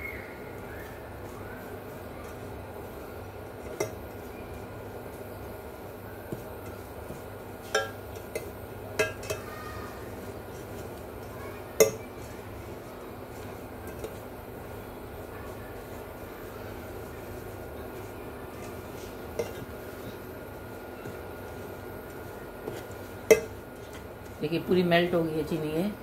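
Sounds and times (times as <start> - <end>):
metal spoon clinking against pot: 7.6 - 9.5, 11.8 - 12.0, 19.4 - 19.6, 23.2 - 23.6.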